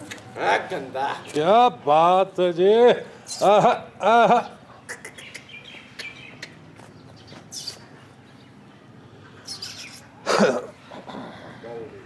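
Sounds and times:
small birds chirping: 3.1s - 11.1s.

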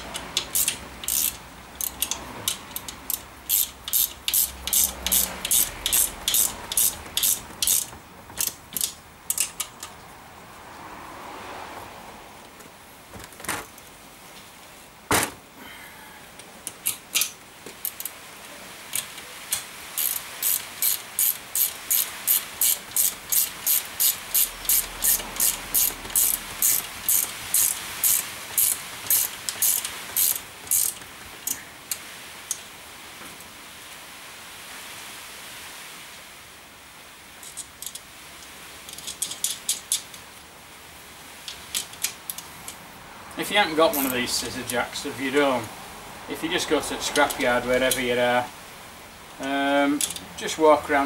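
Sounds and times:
ratchet clicking: 0.0s - 10.0s, 16.7s - 18.2s, 18.9s - 31.6s, 43.9s - 44.8s
scattered clicks and knocks: 0.0s - 10.1s, 19.0s - 31.6s.

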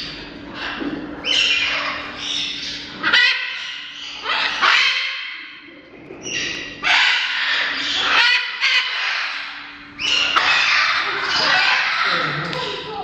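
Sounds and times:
parrots calling loudly: 0.0s - 5.6s, 6.2s - 13.0s.

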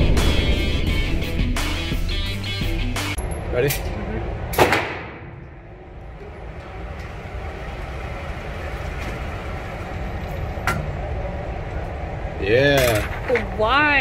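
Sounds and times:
gunshot echo: 4.6s - 5.4s
sharp gunshot bang: 4.6s - 5.4s
motorized target carrier rumbling: 5.2s - 13.8s.

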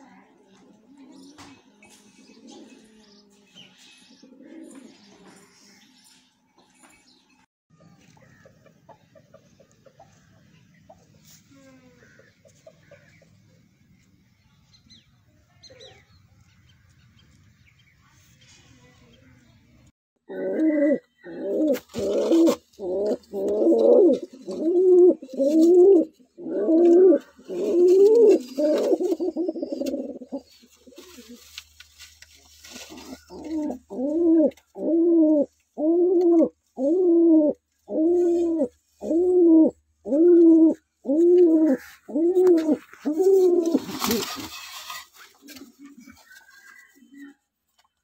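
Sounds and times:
pigeon cooing: 0.5s - 5.5s, 20.3s - 31.6s, 32.8s - 47.5s.

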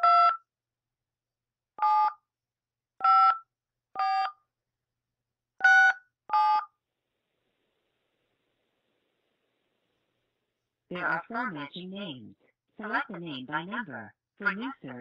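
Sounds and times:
touch-tone keypad beeps: 0.0s - 0.4s, 3.0s - 3.4s, 4.0s - 4.4s, 5.6s - 6.7s.

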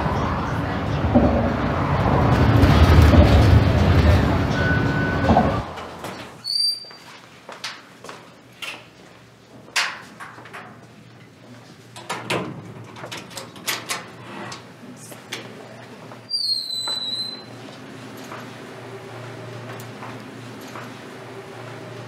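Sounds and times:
knocks and bumps: 0.9s - 6.2s
footsteps: 2.3s - 11.8s
high squeak: 6.4s - 7.1s, 16.3s - 17.6s.

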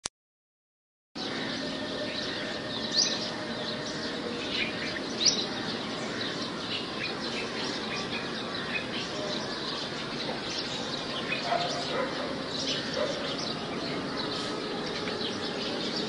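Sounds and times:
birds chirping: 1.2s - 16.0s.

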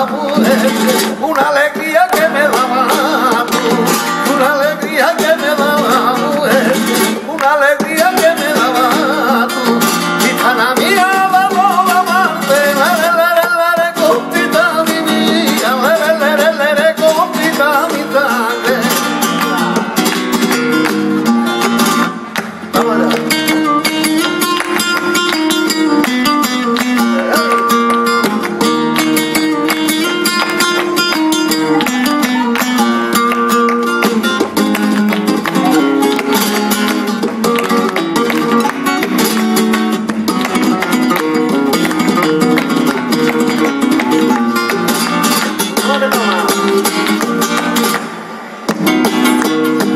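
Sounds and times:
man singing: 0.0s - 20.1s, 22.7s - 24.5s, 25.1s - 34.6s, 40.6s - 48.0s
acoustic guitar: 0.0s - 49.9s
handclaps: 0.0s - 49.9s.

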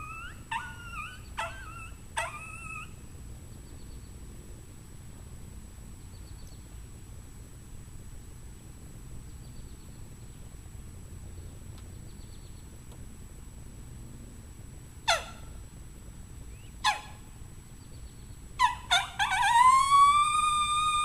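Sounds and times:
coyote howler calls: 0.0s - 3.0s, 15.0s - 15.6s, 16.6s - 17.3s, 18.6s - 21.0s.

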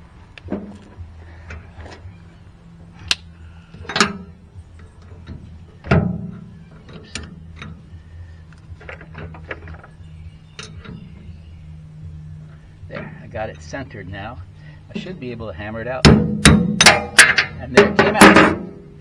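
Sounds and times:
metal shaft clanking and knocking: 3.8s - 7.8s, 14.9s - 18.8s.

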